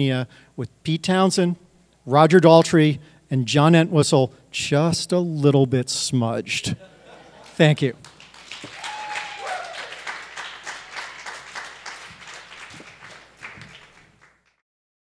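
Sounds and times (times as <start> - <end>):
audience applauding: 7.4 - 14.6
short falling cry: 8.6 - 10.1.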